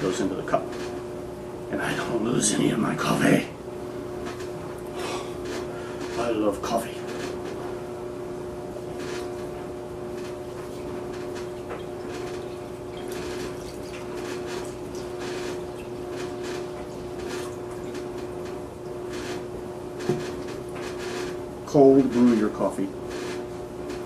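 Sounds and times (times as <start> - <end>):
water pouring from a pitcher: 11.6 - 16.4.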